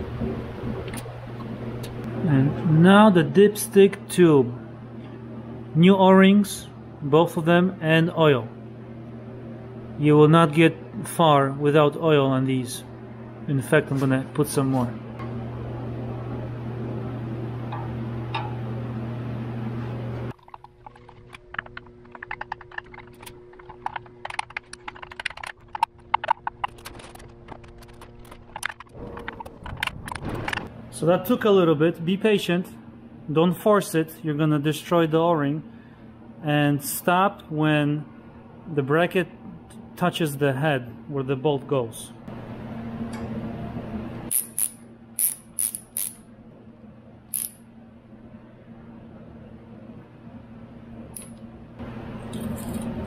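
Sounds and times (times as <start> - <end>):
hand tools clicking on metal: 44.3 - 46.2.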